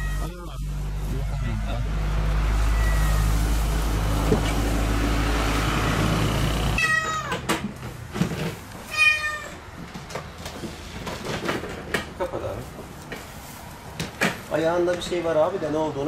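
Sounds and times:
kitten meowing: 0:00.0 - 0:00.6, 0:02.6 - 0:03.4, 0:06.8 - 0:07.4, 0:08.9 - 0:09.6.

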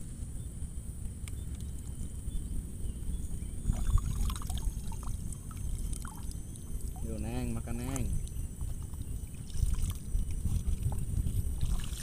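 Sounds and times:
high-pitched hum: 0:00.0 - 0:12.0
water sloshing and trickling: 0:03.6 - 0:12.0
small splashes: 0:08.0 - 0:12.0.

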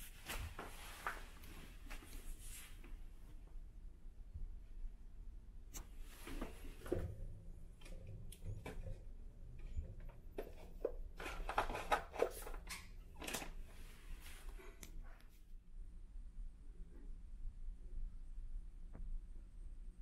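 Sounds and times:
rustling: 0:00.0 - 0:03.3.

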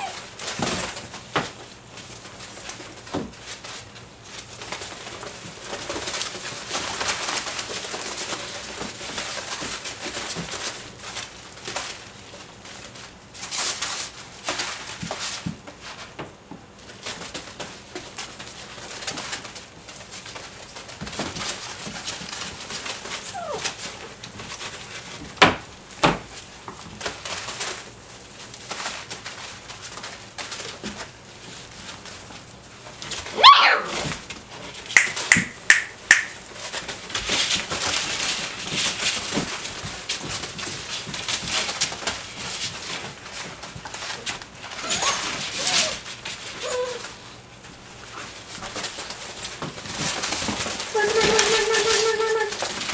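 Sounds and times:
puppy whimpers and grunts: 0:00.0 - 0:00.3, 0:23.2 - 0:23.8, 0:44.8 - 0:47.2, 0:50.9 - 0:52.7
puppy yelp: 0:00.0 - 0:00.3, 0:23.1 - 0:23.9, 0:33.3 - 0:34.1, 0:44.7 - 0:47.2, 0:50.9 - 0:52.7
puppies scrabbling in bedding: 0:00.0 - 0:52.9.

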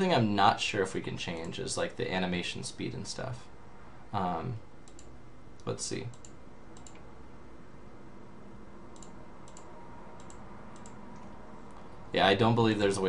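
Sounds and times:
low background hum: 0:00.0 - 0:13.0
computer mouse clicks: 0:04.8 - 0:07.1, 0:08.9 - 0:11.4.

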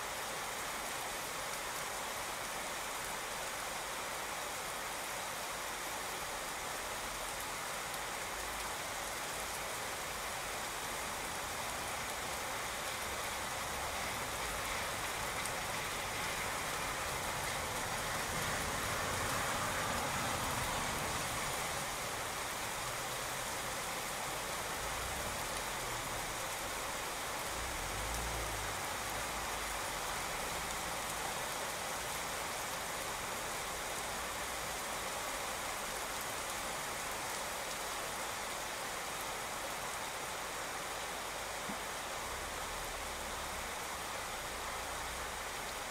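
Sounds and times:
rain on pavement: 0:00.0 - 0:45.9
car passing on wet road: 0:06.4 - 0:45.9.

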